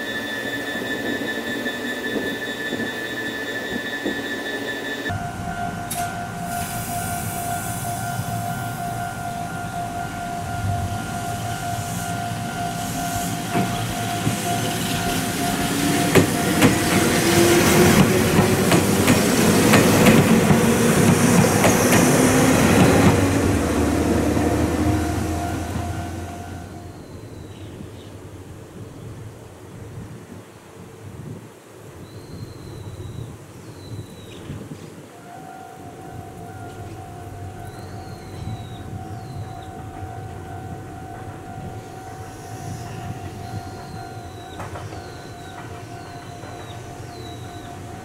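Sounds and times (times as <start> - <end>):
steady ringing tone: 0.0 - 18.7, 35.3 - 48.0
electric train motors whining: 0.0 - 27.3, 35.1 - 48.0
train wheels clattering over rail joints: 13.2 - 24.9, 43.0 - 47.9.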